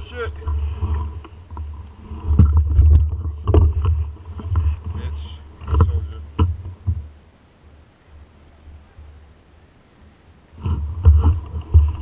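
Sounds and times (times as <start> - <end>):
low uneven rumbling: 0.0 - 12.0
bike knocks and rattles: 5.6 - 7.1, 10.6 - 12.0.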